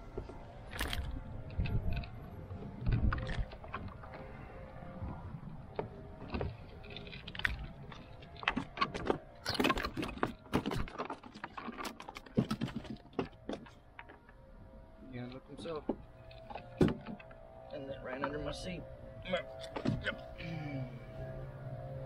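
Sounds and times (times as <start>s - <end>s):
fishing tackle clicks and rattles: 0.6s - 2.2s, 2.8s - 4.2s, 6.2s - 14.4s.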